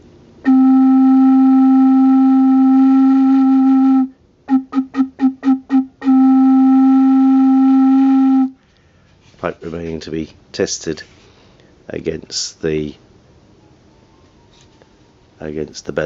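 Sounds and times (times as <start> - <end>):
wooden organ pipe notes: 0.4 - 8.6.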